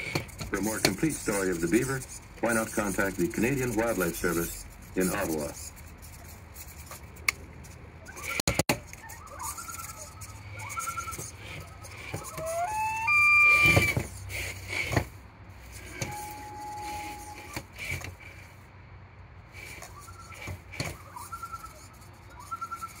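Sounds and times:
small electric motor whining: 0:08.0 - 0:15.0, 0:15.7 - 0:18.4.

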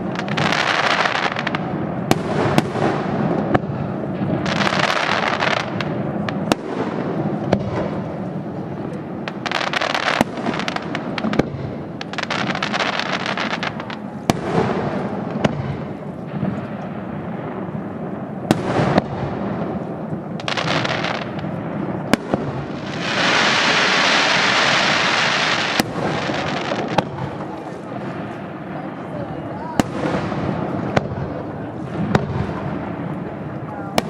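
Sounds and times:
fireworks bursting with sharp bangs: 0:00.0 - 0:34.0
fireworks crackling: 0:00.0 - 0:34.0
loud steady hiss: 0:00.0 - 0:34.0.

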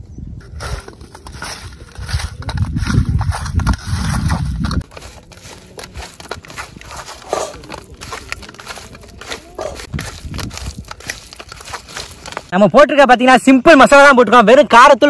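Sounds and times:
microphone rumble: 0:00.0 - 0:12.3
wet clicks of hands mixing prawns: 0:04.8 - 0:12.5.

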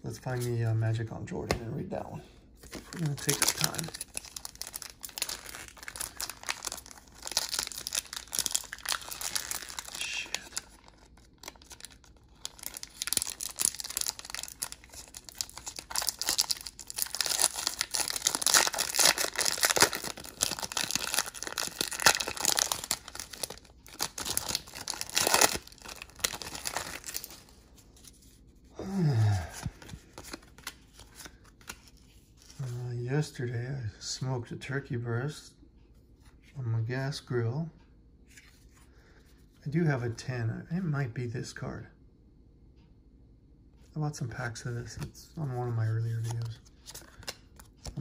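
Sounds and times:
trading cards rustling and shuffling: 0:02.6 - 0:28.4, 0:29.4 - 0:32.8, 0:44.7 - 0:48.0.

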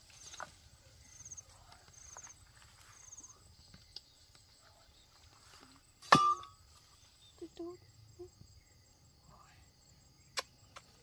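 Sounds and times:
insect chirping: 0:00.0 - 0:11.0.

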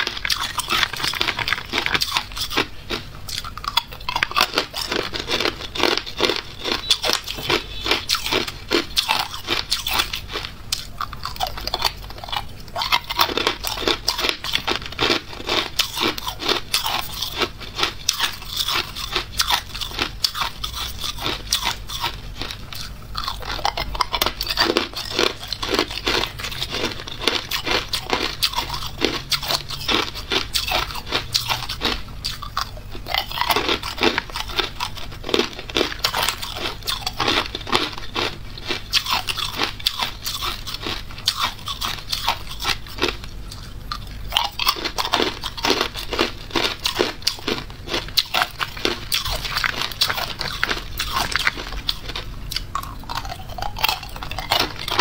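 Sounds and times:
ice cubes crunching: 0:00.0 - 0:55.0.

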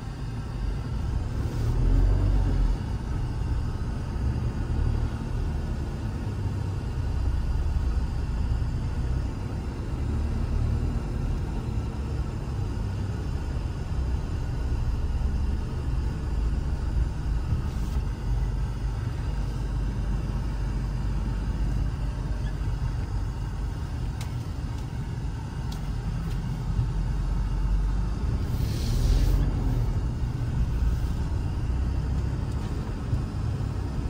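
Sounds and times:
car interior rumble: 0:00.0 - 0:34.0
short hiss: 0:28.5 - 0:29.4.

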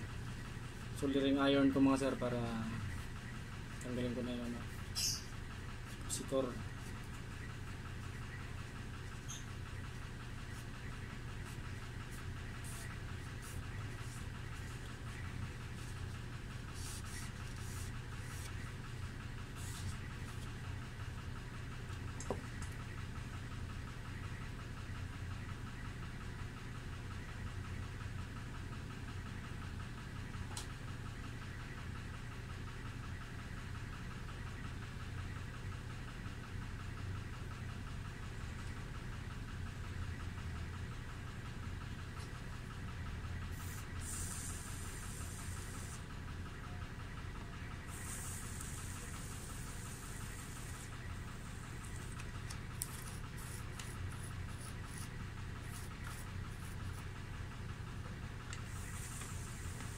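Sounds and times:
low mechanical hum: 0:00.0 - 0:59.9.

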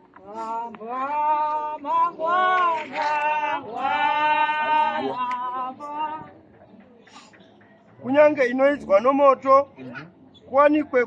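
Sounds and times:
person singing a hymn: 0:00.0 - 0:06.4.

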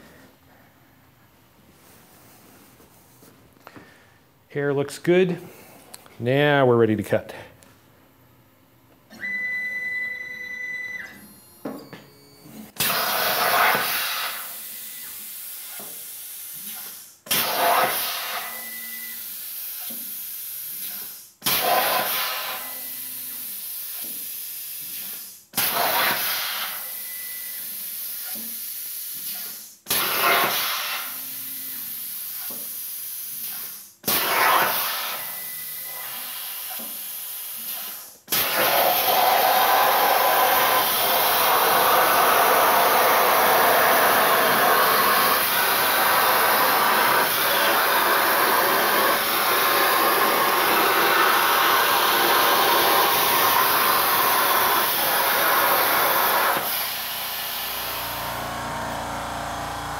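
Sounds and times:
plasma cutter hissing: 0:12.8 - 0:18.6, 0:19.4 - 0:27.0, 0:27.7 - 0:31.2, 0:31.9 - 0:58.2.

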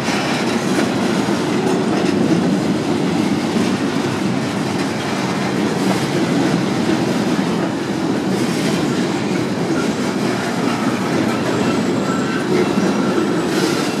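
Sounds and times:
train wheels rumbling and clattering: 0:00.0 - 0:14.0
high wheel squeal: 0:09.2 - 0:14.0.

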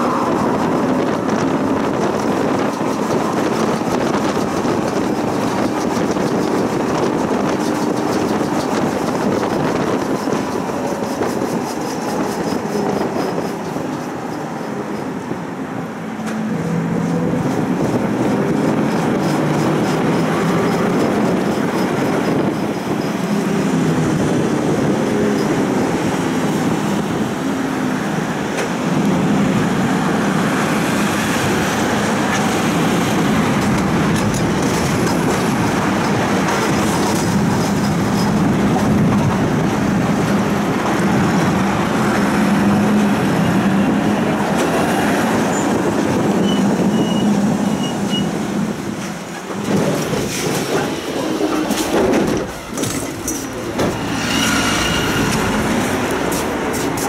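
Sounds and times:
tram wheels rumbling on rails: 0:00.0 - 0:57.0.

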